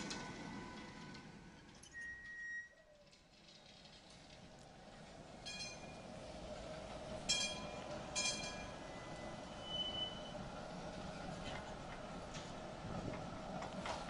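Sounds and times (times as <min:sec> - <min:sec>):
tram wheels rumbling on rails: 0:00.0 - 0:14.0
high wheel squeal: 0:01.8 - 0:03.1, 0:08.2 - 0:10.5.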